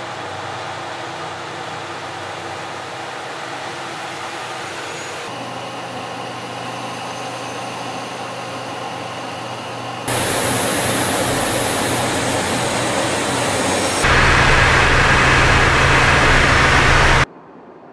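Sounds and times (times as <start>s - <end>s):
aircraft engines droning: 0.0s - 17.9s
faint high whine: 4.8s - 17.3s
low steady hum: 10.1s - 17.3s.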